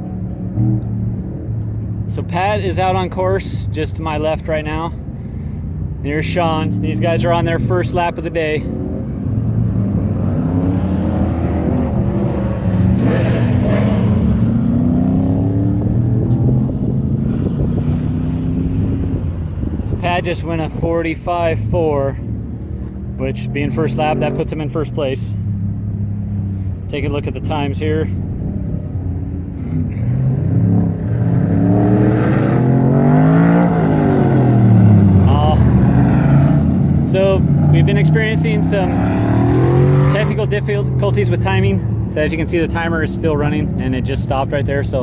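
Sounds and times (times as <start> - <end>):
truck engine revving: 6.0 - 22.3, 26.5 - 45.0.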